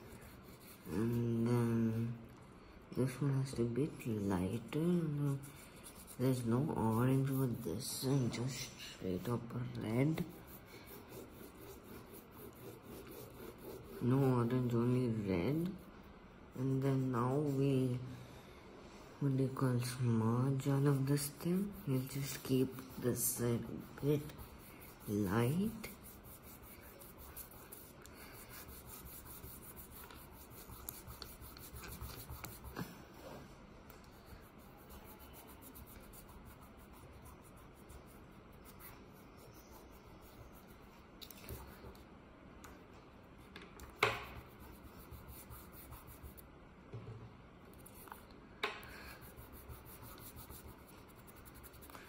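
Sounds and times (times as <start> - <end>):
fingertips rubbing pastel on paper: 0.0 - 2.1, 4.5 - 18.0, 20.4 - 33.0, 34.1 - 41.8, 44.3 - 46.4, 49.1 - 52.0.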